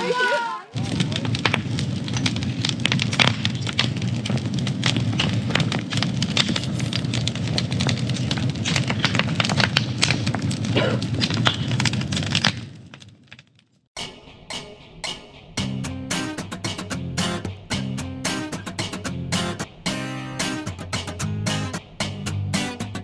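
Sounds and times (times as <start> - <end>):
campfire crackling and popping: 0.0 - 13.9
low rumble of fire: 0.7 - 13.9.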